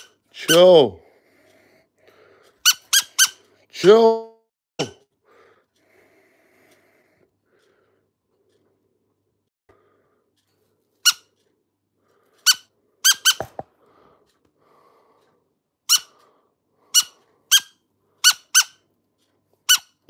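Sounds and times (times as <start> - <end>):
parrot squawking: 2.6 - 3.4, 12.4 - 13.6, 15.9 - 16.2, 16.9 - 18.8, 19.7 - 20.0.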